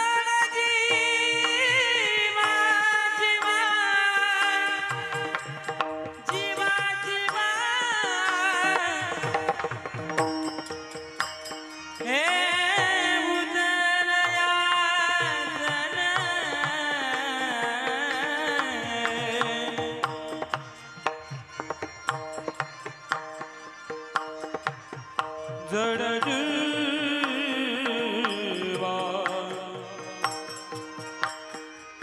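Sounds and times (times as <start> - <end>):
man singing: 0.0 - 10.7, 12.0 - 20.8, 25.6 - 31.3
small hand cymbals: 4.2 - 13.6, 28.2 - 32.0.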